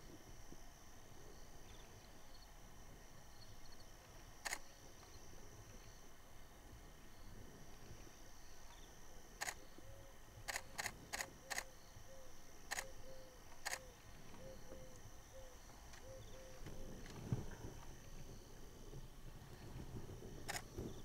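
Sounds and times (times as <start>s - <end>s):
camera shutter clicks: 4.4s - 4.7s, 9.4s - 9.6s, 10.5s - 11.7s, 12.7s - 13.9s, 20.5s - 20.7s.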